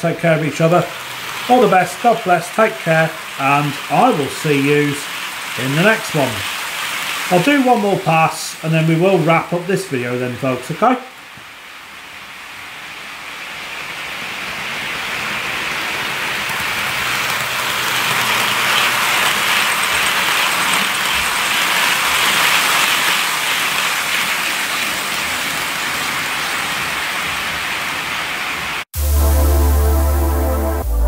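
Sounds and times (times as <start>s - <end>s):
model train wheels rattling: 0.0s - 9.2s, 16.0s - 26.3s.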